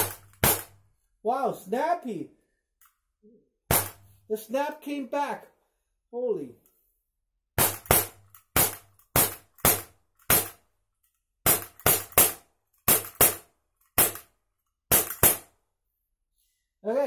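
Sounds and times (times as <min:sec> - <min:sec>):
air pistol shots: 0:00.0 - 0:00.8, 0:03.7 - 0:04.2, 0:07.6 - 0:10.6, 0:11.4 - 0:14.3, 0:14.9 - 0:15.6.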